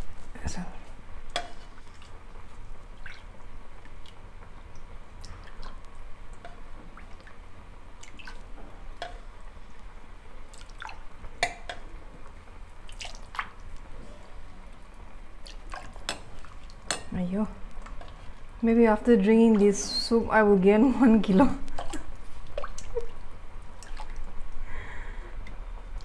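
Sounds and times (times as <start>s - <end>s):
liquid dripping and splashing: 2.8s - 7.4s, 8.0s - 9.3s, 10.5s - 11.8s, 12.8s - 13.8s, 15.4s - 18.3s, 21.7s - 24.3s.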